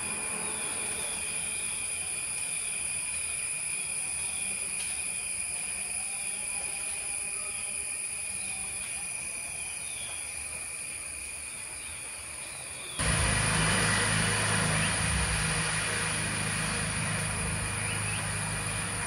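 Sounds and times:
faint insect chirps: 0.0s - 13.0s, 13.6s - 19.0s
insect chorus drone: 0.0s - 19.0s
low hum: 13.0s - 19.0s
rushing noise: 13.0s - 19.0s.

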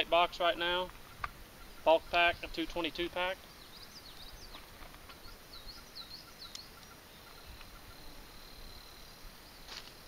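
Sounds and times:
birds chirping: 0.0s - 10.0s
high insect buzz: 6.0s - 10.0s.

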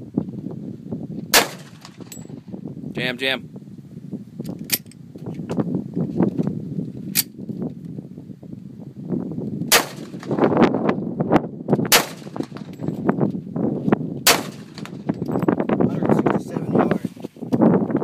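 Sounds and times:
pistol shots: 1.3s - 2.1s, 9.7s - 10.4s, 11.9s - 12.7s, 14.3s - 15.0s.

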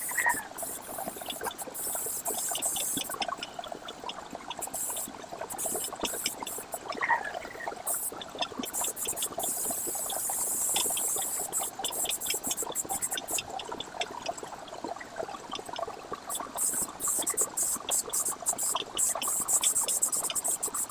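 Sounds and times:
constant crackling patter: 0.0s - 20.9s
airbrush spraying hiss: 16.6s - 20.9s.

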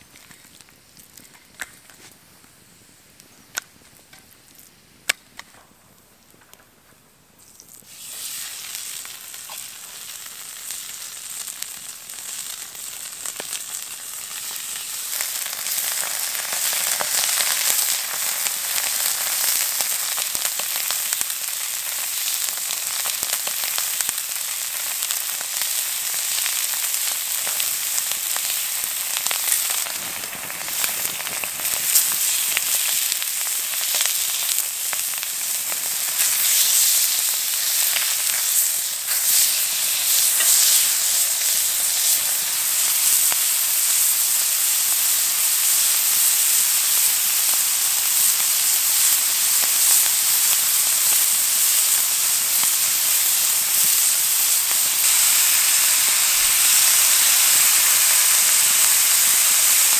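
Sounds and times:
steaks sizzling in pan: 7.4s - 59.9s.

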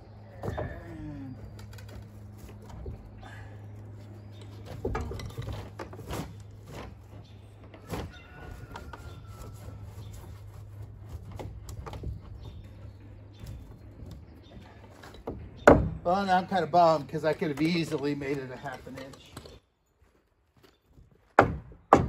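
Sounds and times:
steady low hum: 0.0s - 19.6s
wooden joist knocking and scraping: 4.3s - 19.6s.

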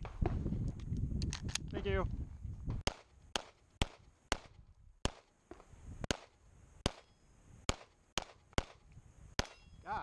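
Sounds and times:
pistol shots: 2.8s - 5.3s, 7.7s - 8.8s.

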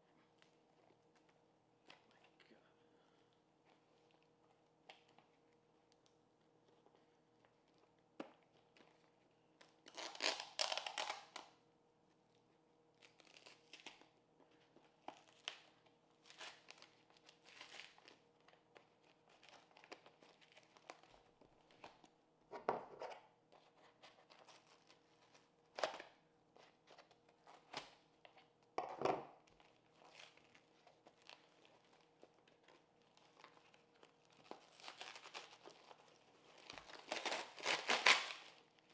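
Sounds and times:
cardboard tearing and crinkling: 16.2s - 18.2s, 33.1s - 38.7s.

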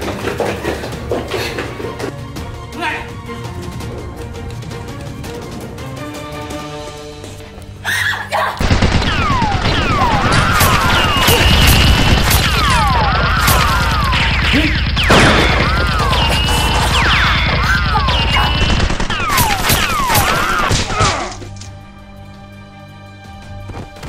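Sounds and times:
background music: 0.0s - 24.0s
automatic gunfire: 8.6s - 20.9s.

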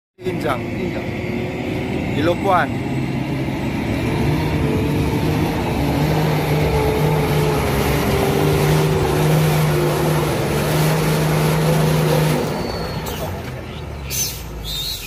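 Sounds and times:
truck diesel engine under load: 0.2s - 15.0s.

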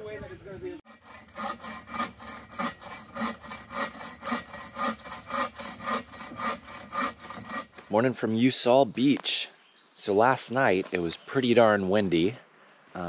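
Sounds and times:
hand saw cutting wood: 0.8s - 8.0s.

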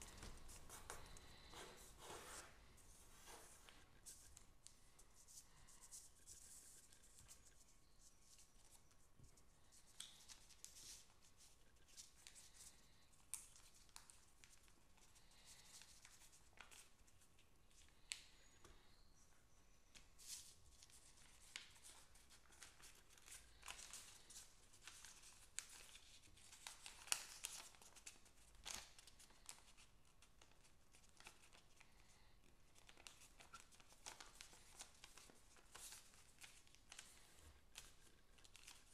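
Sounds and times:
paper being folded: 0.0s - 8.8s, 20.2s - 32.1s, 32.7s - 38.9s
sharp paper crackles: 21.2s - 31.6s, 32.8s - 38.9s.

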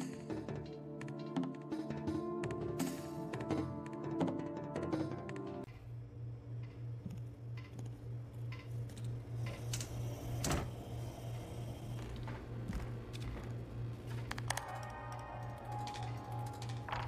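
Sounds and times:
low pulsing hum: 5.7s - 17.0s.

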